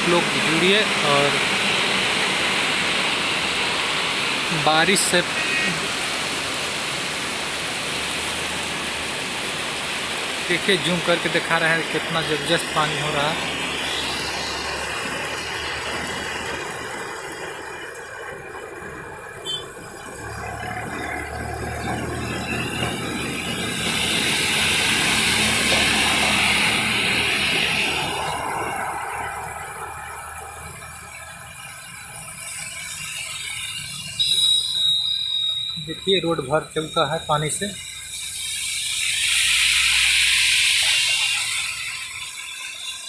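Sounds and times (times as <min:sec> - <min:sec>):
heavy rain on road: 0:00.0 - 0:43.0
vehicles driving on wet road: 0:00.0 - 0:43.0
high squeal: 0:19.4 - 0:43.0.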